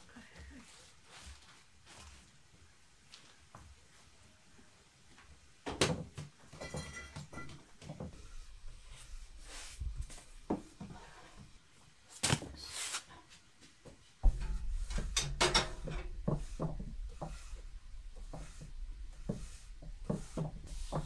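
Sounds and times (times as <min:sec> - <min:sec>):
rolling pin rolling dough: 0:06.6 - 0:11.5, 0:14.3 - 0:21.0.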